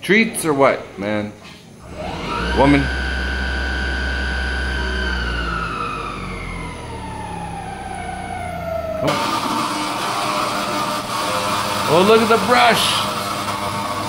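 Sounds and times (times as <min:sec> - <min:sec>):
low hum: 0:01.8 - 0:11.2
high motor whine gliding down: 0:01.8 - 0:14.0.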